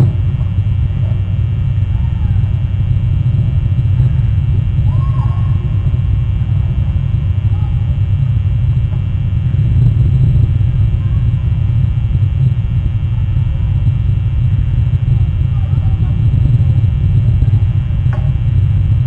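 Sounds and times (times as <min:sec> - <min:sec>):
wind buffeting microphone: 0:00.0 - 0:19.0
faint chirps: 0:03.4 - 0:08.8.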